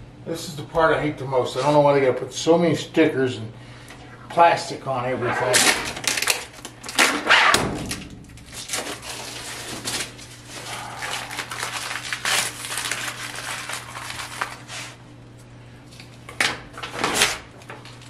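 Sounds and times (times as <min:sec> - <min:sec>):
crinkling and rustling: 0:08.5 - 0:14.6
plastic film peeled and crumpled: 0:08.6 - 0:14.8.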